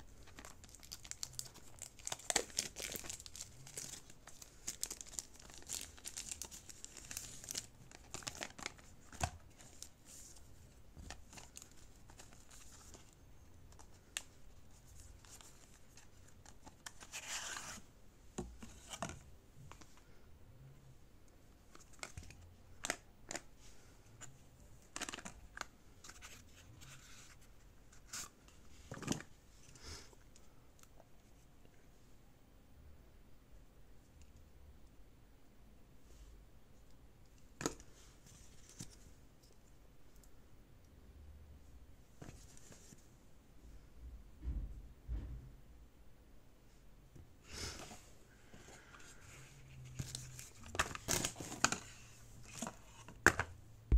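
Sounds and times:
plastic wrap crinkling and tearing: 0:00.2 - 0:08.8.

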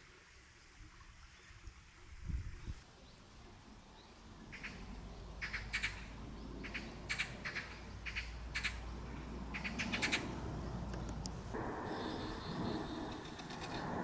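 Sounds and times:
bird chirping: 0:04.0 - 0:14.0
low steady hum: 0:10.3 - 0:14.0.

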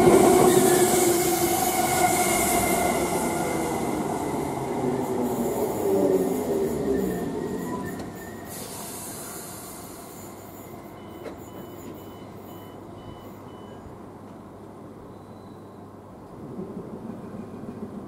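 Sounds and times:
electric train rumbling: 0:00.0 - 0:13.0, 0:15.8 - 0:18.0
train wheel squeal: 0:00.0 - 0:13.8, 0:15.1 - 0:15.8.

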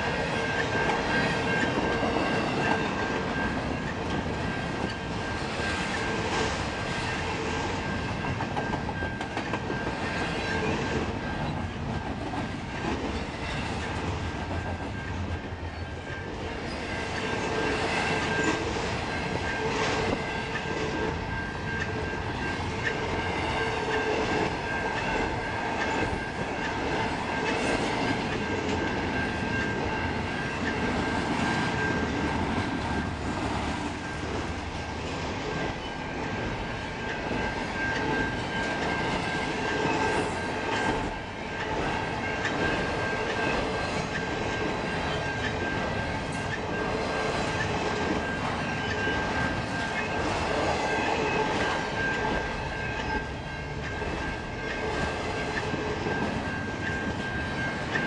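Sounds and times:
train wheels rumbling on rails: 0:00.0 - 0:58.0
steady high tone: 0:35.6 - 0:58.0.

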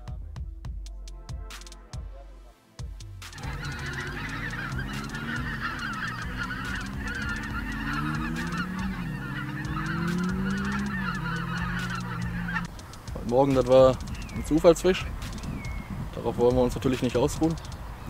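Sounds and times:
geese honking: 0:03.3 - 0:17.7.

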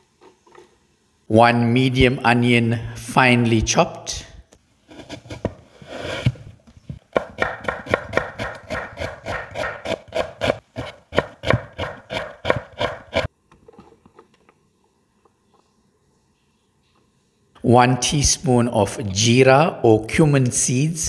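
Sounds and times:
knife chopping onion on wood: 0:07.0 - 0:13.3.

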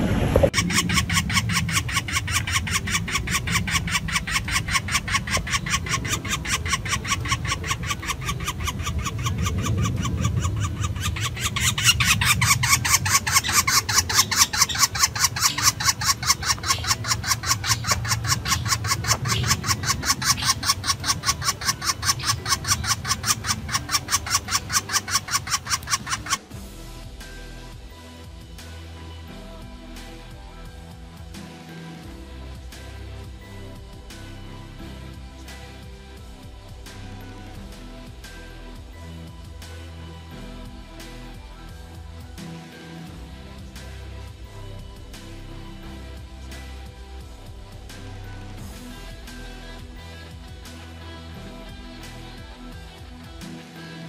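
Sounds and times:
woodpecker nestling begging calls: 0:00.5 - 0:26.6.

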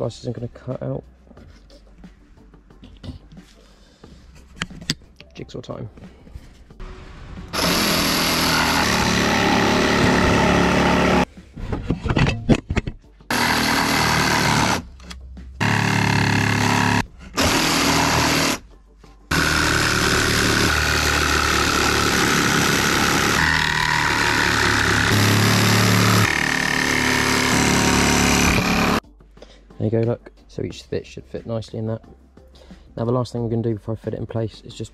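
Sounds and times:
jigsaw cutting timber: 0:07.5 - 0:11.3, 0:13.3 - 0:14.8, 0:15.6 - 0:18.6, 0:19.3 - 0:29.0.

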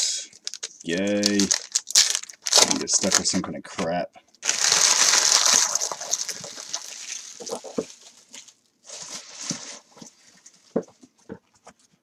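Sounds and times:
card pack wrapper crinkling: 0:00.3 - 0:03.4, 0:04.4 - 0:09.8.

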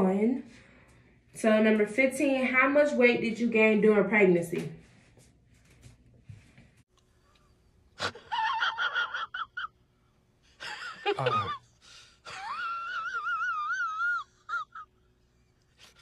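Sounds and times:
high-pitched squealing cries: 0:12.8 - 0:14.8.

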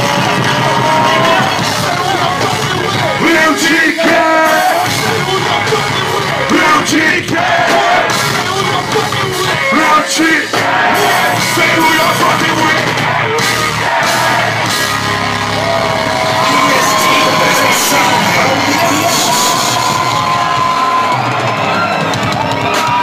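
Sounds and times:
vocalist yelling and singing: 0:00.0 - 0:14.5, 0:16.0 - 0:21.1
live rock band music: 0:00.0 - 0:23.0.

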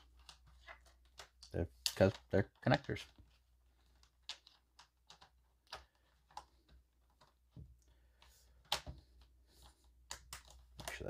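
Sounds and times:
plastic toy pieces clicking: 0:00.0 - 0:06.5.

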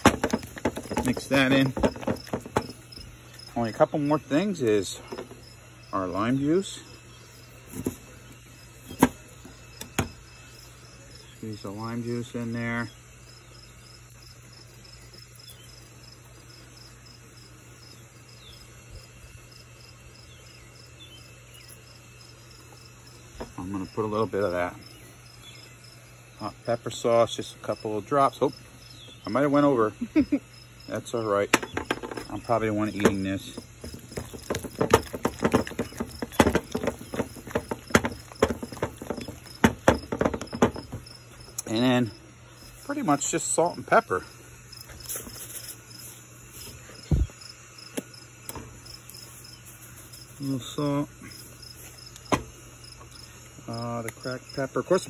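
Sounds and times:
insects chirping: 0:00.0 - 0:55.0
utensil mashing food in plastic bowl: 0:31.7 - 0:41.2.

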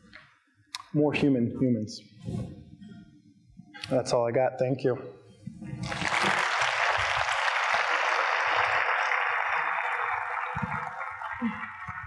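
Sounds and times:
audience applauding: 0:05.8 - 0:12.0.

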